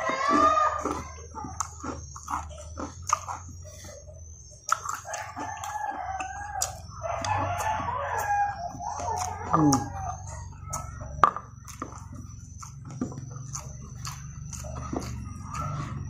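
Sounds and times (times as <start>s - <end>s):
rooster crowing: 0.0s - 1.8s, 4.8s - 11.1s, 14.5s - 16.0s
chewing crispy food: 0.0s - 16.0s.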